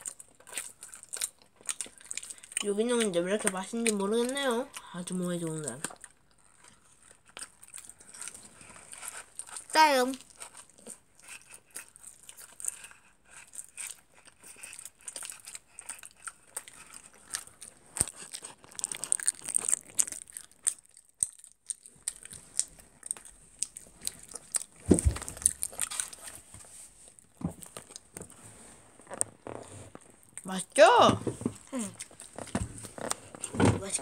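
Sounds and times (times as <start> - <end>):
chewing: 0.0 - 28.4, 31.4 - 34.0
dull thump: 24.8 - 25.4.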